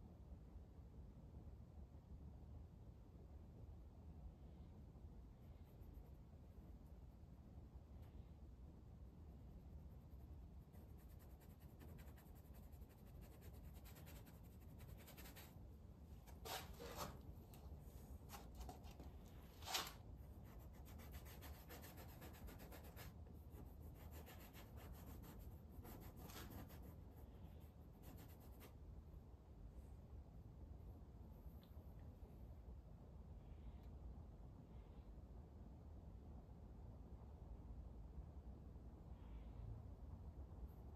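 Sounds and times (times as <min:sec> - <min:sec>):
paintbrush scratching on canvas: 0:09.4 - 0:15.6, 0:18.3 - 0:28.8.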